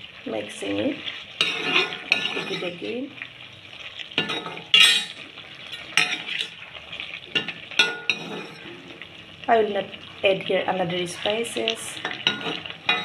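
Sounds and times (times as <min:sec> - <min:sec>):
faint sizzle: 0:00.0 - 0:13.0
metal spoon scraping a pan: 0:01.3 - 0:03.0, 0:04.2 - 0:06.6, 0:07.3 - 0:08.9, 0:11.2 - 0:13.0.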